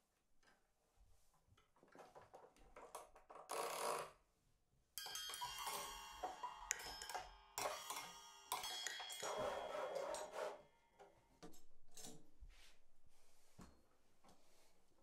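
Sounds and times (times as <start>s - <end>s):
ringing bell-like tones: 5.0s - 10.4s.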